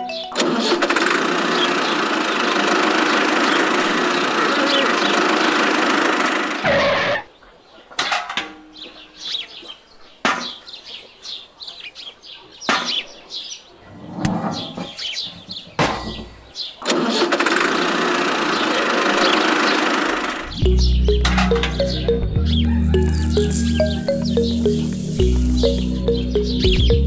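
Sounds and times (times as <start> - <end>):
toy motor buzzing: 0.6 - 6.7, 22.9 - 24.0
birds chirping: 1.4 - 17.4, 18.2 - 27.0.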